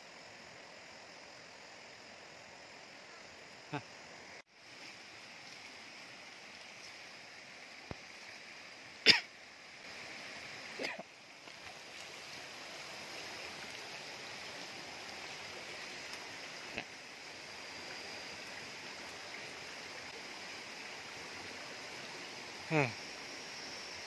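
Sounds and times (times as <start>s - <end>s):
river flowing: 0.3s - 24.0s
cough-like sound: 9.0s - 9.3s, 10.8s - 11.1s.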